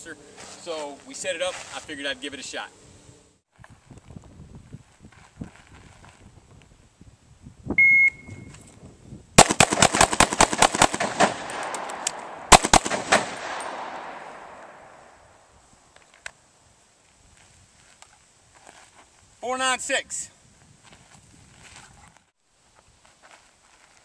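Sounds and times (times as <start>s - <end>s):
shot timer beep: 7.8s - 8.5s
pistol shots echoing: 9.4s - 15.1s.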